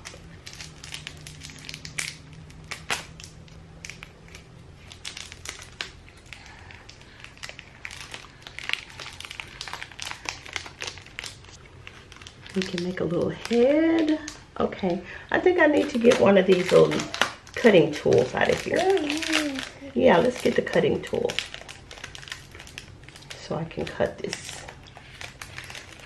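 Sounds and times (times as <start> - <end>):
plastic bag crinkling: 0.0 - 14.5, 15.4 - 26.0.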